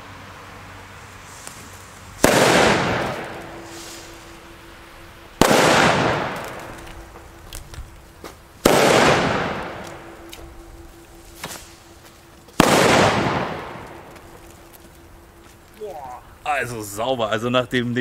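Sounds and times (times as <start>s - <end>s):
firecracker bangs with echo: 2.2s - 4.7s, 5.4s - 7.4s, 8.6s - 12.0s, 12.6s - 14.4s.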